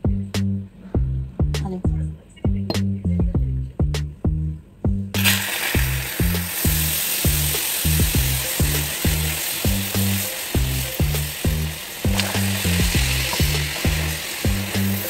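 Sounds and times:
music with beat and bass: 0:00.0 - 0:05.2, 0:05.8 - 0:15.0
caramel boiling and sizzling: 0:05.2 - 0:15.0.

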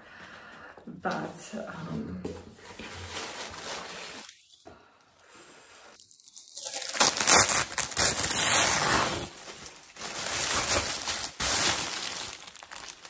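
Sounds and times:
tissue paper rustling and crinkling: 0:02.6 - 0:04.5, 0:06.0 - 0:13.0.

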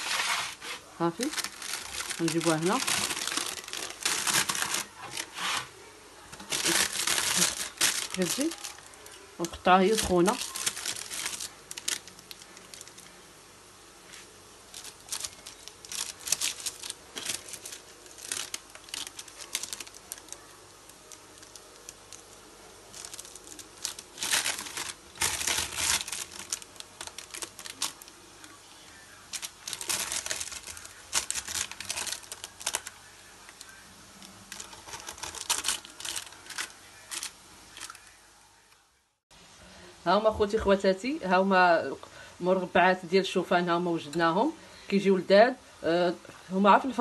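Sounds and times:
paper crinkling: 0:00.0 - 0:13.2, 0:14.1 - 0:38.2.

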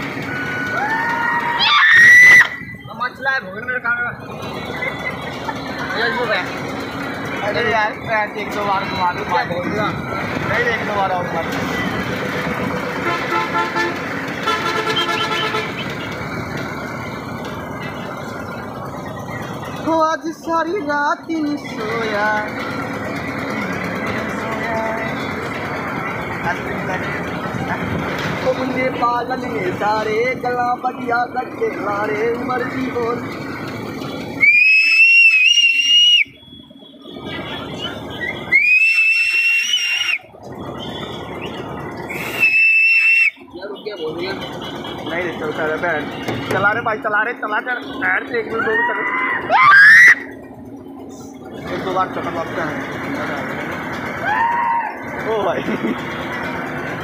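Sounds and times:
fairground noise: 0:00.0 - 0:57.0
horn toot: 0:13.0 - 0:16.0
high-pitched squeals: 0:34.3 - 0:43.5.

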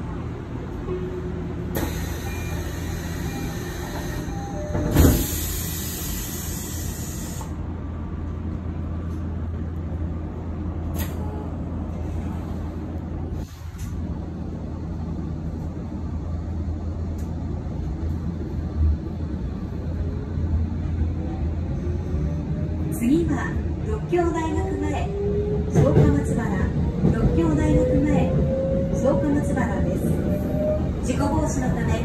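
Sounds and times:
train rumbling on rails: 0:00.0 - 0:32.0
hiss: 0:05.0 - 0:07.5.

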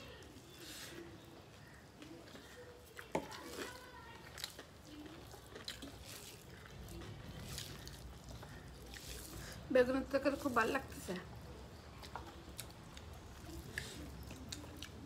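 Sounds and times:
fingers mixing wet rice: 0:00.0 - 0:11.0
chewing and lip-smacking: 0:01.0 - 0:09.7, 0:11.3 - 0:15.0.

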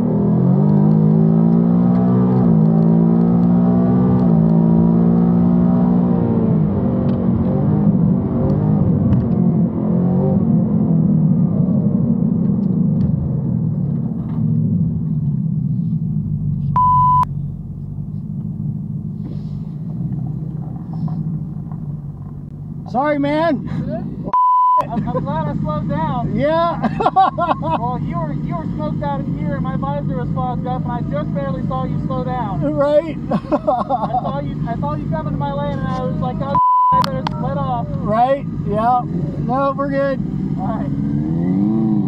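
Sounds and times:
car engine accelerating hard: 0:00.0 - 0:24.3, 0:24.9 - 0:42.0
censor bleep: 0:16.8 - 0:17.3, 0:24.3 - 0:24.9, 0:36.5 - 0:37.1.

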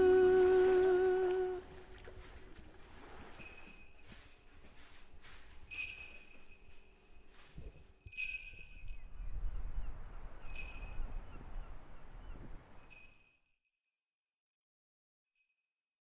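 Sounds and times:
jingle bells shaken: 0:05.5 - 0:07.4, 0:08.0 - 0:09.4, 0:10.4 - 0:11.6.

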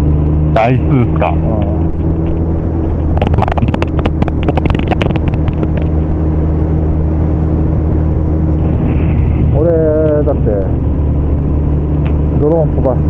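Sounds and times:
motorcycle engine cruising: 0:00.0 - 0:13.0
wind noise: 0:01.2 - 0:12.4
sharp clicks and rattles: 0:01.5 - 0:06.1.

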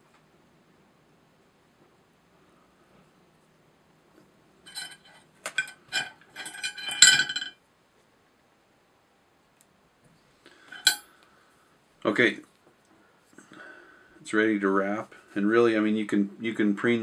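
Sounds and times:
small metal tools clinking: 0:04.7 - 0:07.6, 0:10.6 - 0:11.1.

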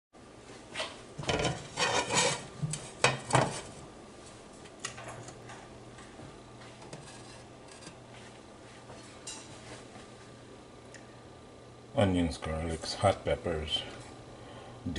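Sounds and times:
low steady hum: 0:00.2 - 0:14.9
frying pan scraping on glass stove: 0:01.2 - 0:03.8, 0:06.9 - 0:08.0.

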